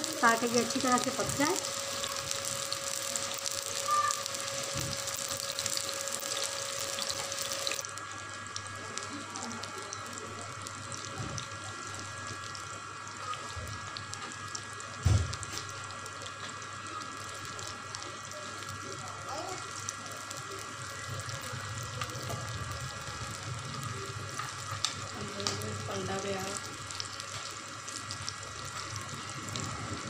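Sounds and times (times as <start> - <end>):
kebabs sizzling on a griddle: 0.0 - 30.0
brief thump: 15.0 - 15.3.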